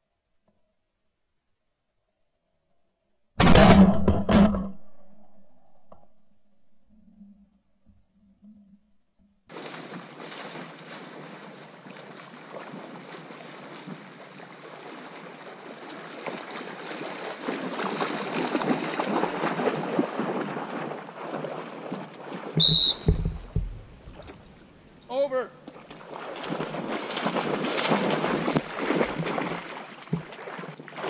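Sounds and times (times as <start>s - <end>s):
dog swimming splashing water: 9.5s - 25.0s, 25.6s - 31.0s
heavy low thumps: 22.7s - 24.7s.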